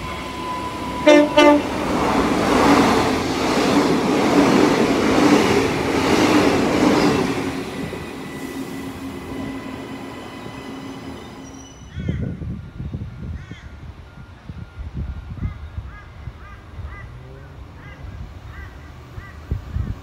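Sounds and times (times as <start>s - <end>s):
electric train passing: 0.0s - 20.0s.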